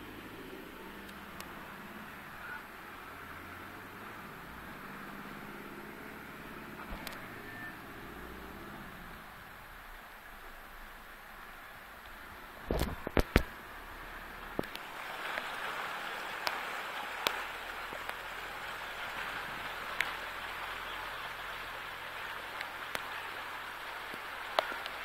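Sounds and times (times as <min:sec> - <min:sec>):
raindrops tapping: 0:12.0 - 0:25.0.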